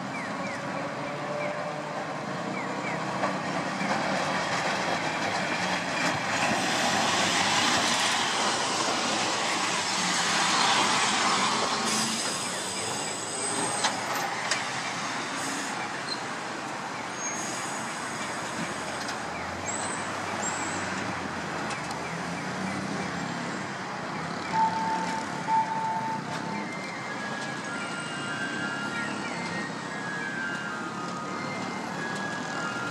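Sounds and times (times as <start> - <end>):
streetcar rolling and rumbling: 0.0 - 32.9
wheels squealing on rails: 0.5 - 16.4, 17.0 - 21.1, 24.2 - 32.9
short beeps: 24.5 - 26.3.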